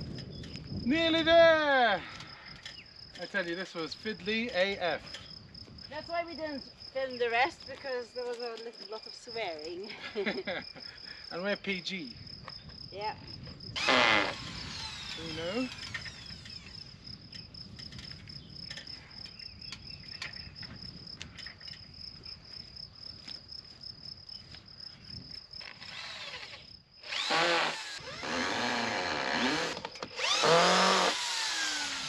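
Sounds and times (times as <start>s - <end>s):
high insect trill: 0.0s - 32.0s
cordless drill whining into wood: 13.8s - 16.8s, 25.6s - 32.0s.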